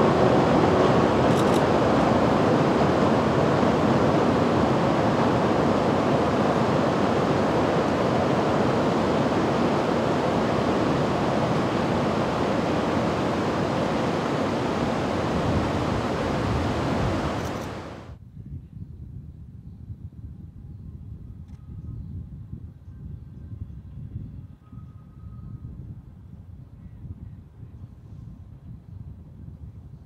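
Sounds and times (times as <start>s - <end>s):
river rushing: 0.0s - 18.1s
train rumbling on steel bridge: 0.0s - 18.1s.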